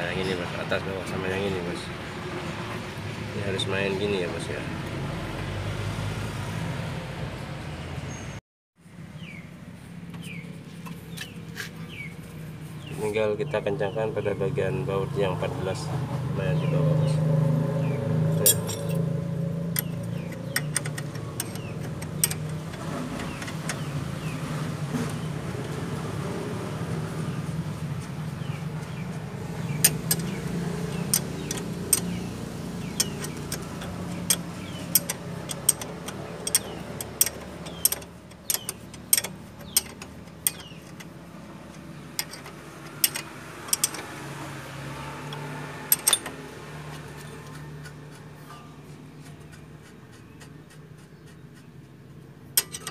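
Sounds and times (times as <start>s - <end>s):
wrench clicking on bolts: 19.7s - 23.9s, 29.8s - 44.3s, 45.2s - 46.4s, 52.6s - 52.9s.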